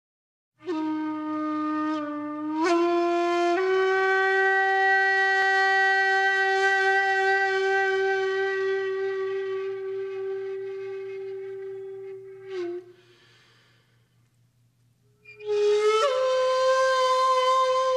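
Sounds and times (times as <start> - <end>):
wind instrument long breathy note: 10.6 - 14.2.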